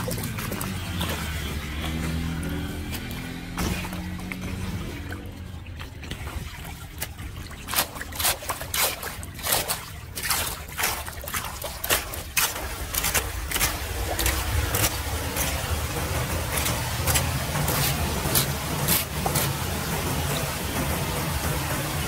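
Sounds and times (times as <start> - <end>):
water churning down a drain: 0.0 - 22.0
water splashing and sloshing: 0.0 - 22.0
rake dragging debris: 7.7 - 20.4
low steady rumble: 9.9 - 22.0.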